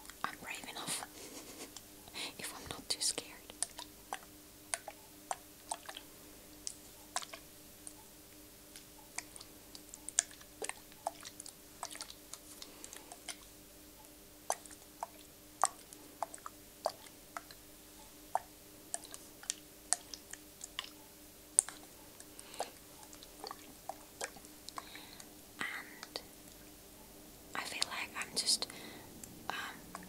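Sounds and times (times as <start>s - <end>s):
faint steady hum: 0.0s - 30.0s.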